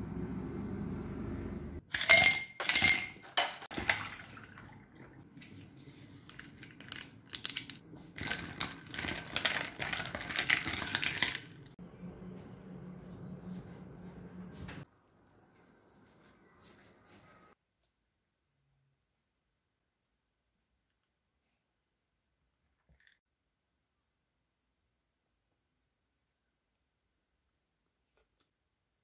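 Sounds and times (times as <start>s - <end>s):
glass and dishes clinking: 2.0s - 4.5s
liquid fizzing: 3.7s - 5.7s.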